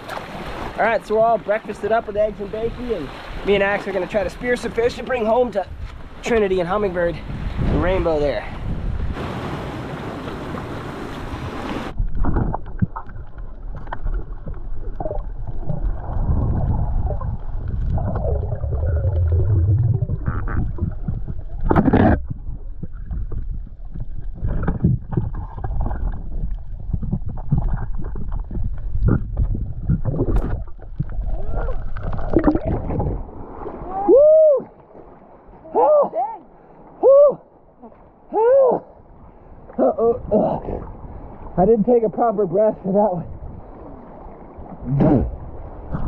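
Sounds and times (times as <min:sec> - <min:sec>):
surf: 0:00.0 - 0:46.0
wind: 0:00.0 - 0:46.0
muffled underwater water movement: 0:08.6 - 0:35.7.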